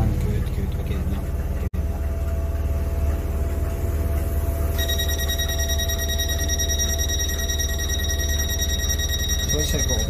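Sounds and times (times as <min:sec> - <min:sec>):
high-pitched tonal whine: 0:03.9 - 0:10.0.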